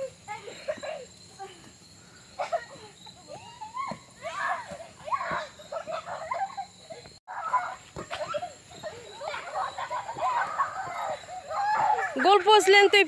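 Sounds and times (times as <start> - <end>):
insects droning: 0.0 - 13.0
distant people shouting: 7.3 - 13.0.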